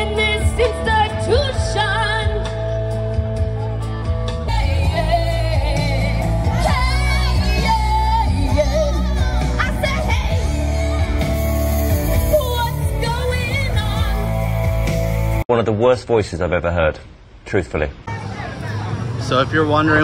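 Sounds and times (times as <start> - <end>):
low bass accompaniment: 0.0 - 15.4.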